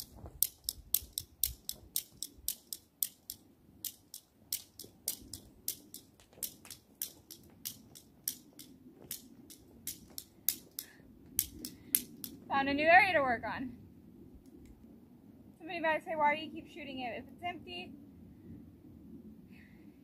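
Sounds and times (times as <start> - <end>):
toy cap gun trigger clicks: 0.4 - 12.4.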